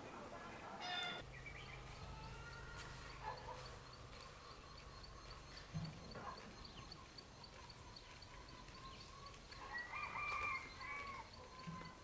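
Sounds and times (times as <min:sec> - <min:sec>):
distant rooster crowing: 0:09.6 - 0:12.0.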